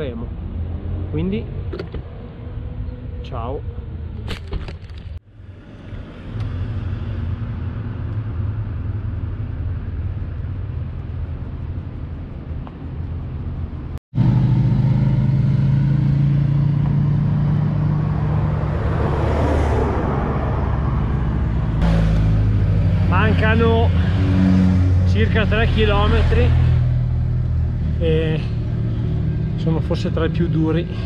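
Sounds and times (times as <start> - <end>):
traffic rumble: 0.0 - 31.0
vehicle passing: 5.2 - 10.8, 13.9 - 31.0.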